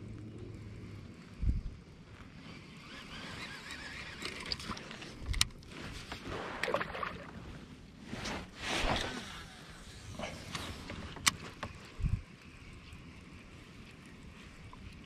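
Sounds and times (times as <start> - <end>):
rustling and shuffling: 4.7 - 15.0.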